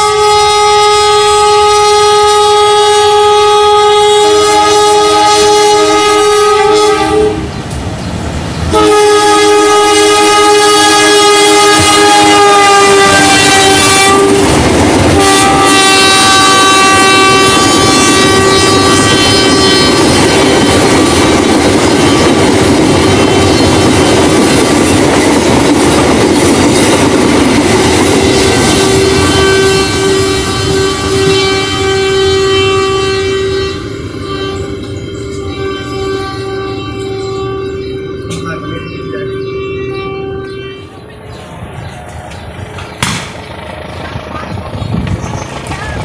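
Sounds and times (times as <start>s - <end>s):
locomotive air horn blasts: 0.0s - 7.5s, 8.7s - 21.2s, 22.0s - 23.9s, 28.1s - 41.0s
train wheels clattering on rails: 6.2s - 8.8s, 11.5s - 38.7s, 41.6s - 46.0s.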